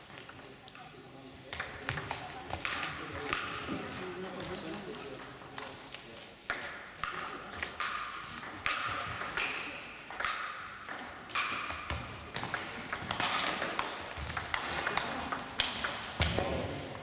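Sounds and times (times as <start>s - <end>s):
table tennis ball hits echoing: 1.5s - 5.8s, 6.5s - 17.0s.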